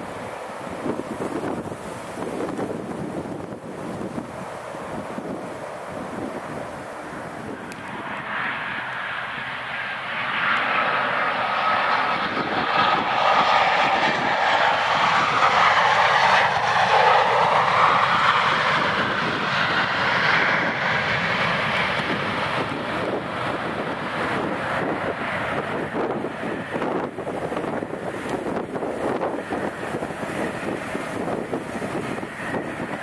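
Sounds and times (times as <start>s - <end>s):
faint jet whine: 0.0s - 33.0s
jet engines rushing: 0.0s - 33.0s.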